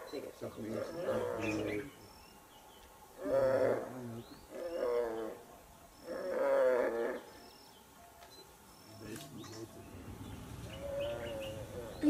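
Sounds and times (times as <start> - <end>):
low drawn-out animal calls: 0.6 - 2.0, 3.2 - 7.7, 8.7 - 12.0.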